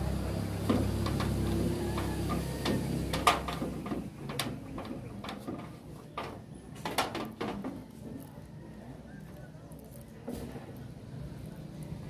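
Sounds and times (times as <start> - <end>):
tools clicking on metal roof: 0.6 - 7.8.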